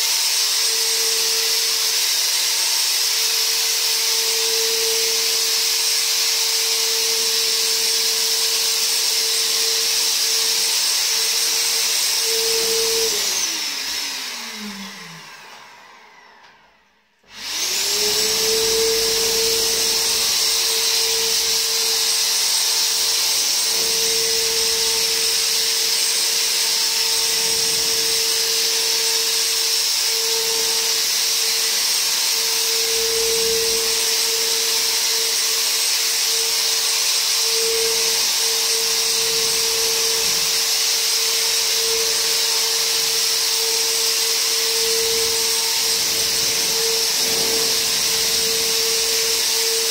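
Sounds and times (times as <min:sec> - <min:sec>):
electric fogger motor whine: 0:00.0 - 0:49.9
spray hiss: 0:45.8 - 0:49.6.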